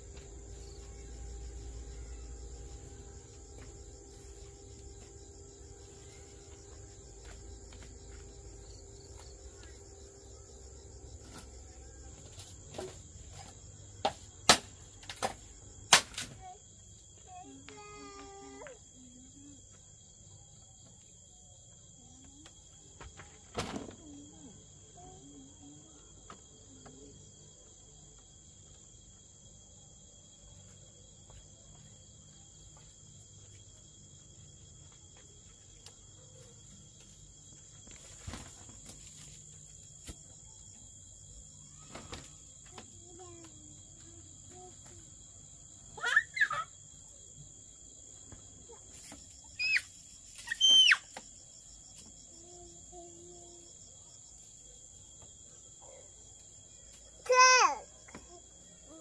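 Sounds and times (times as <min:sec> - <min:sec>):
insect drone: 0:00.0 - 0:59.0.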